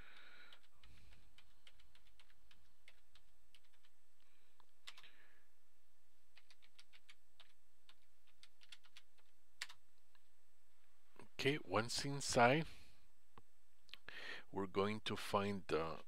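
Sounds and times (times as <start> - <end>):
keyboard typing: 0.1 - 5.1, 6.3 - 9.8.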